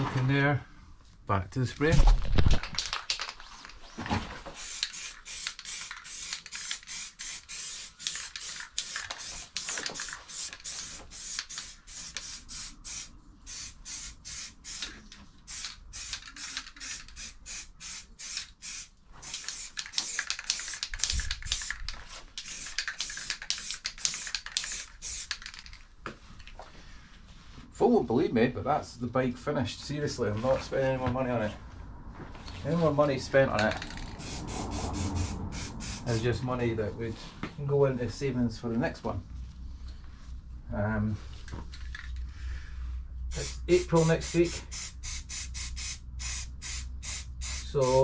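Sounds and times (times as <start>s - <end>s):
spray paint can hissing: 4.6s - 25.7s, 33.7s - 36.2s, 43.3s - 48.0s.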